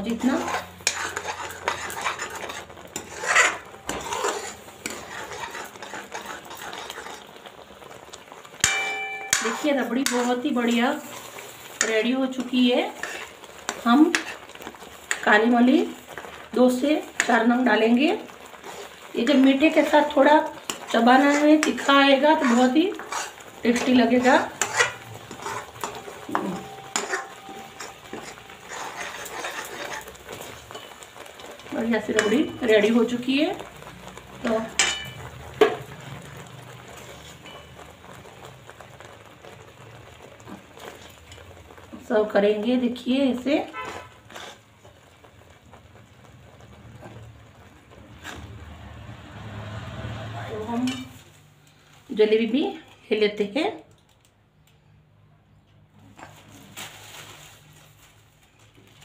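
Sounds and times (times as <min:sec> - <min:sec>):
metal spoon scraping a pan: 0:00.0 - 0:39.6, 0:40.4 - 0:45.5, 0:48.1 - 0:48.8, 0:50.5 - 0:51.3
spoon clinking on pan: 0:08.6 - 0:10.3, 0:24.6 - 0:29.1, 0:32.2 - 0:32.8, 0:34.8 - 0:35.8
thick liquid bubbling: 0:33.6 - 0:34.6.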